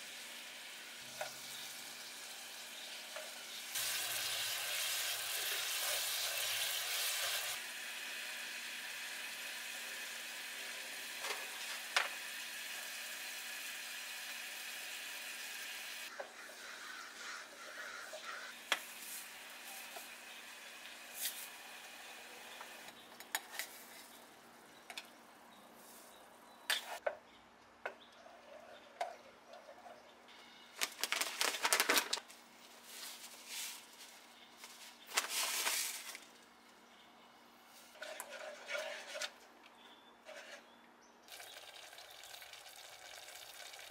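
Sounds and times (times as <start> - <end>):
food sizzling in a frying pan: 0.0 - 16.1.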